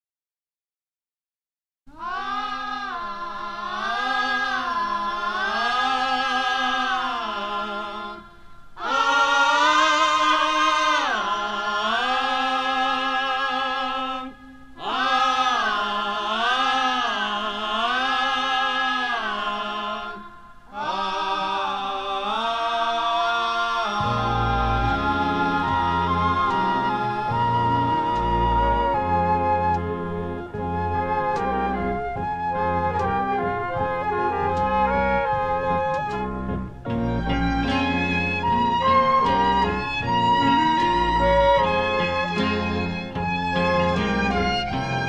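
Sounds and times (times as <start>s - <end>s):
person singing unaccompanied: 1.9s - 45.0s
low instrumental notes: 24.0s - 45.0s.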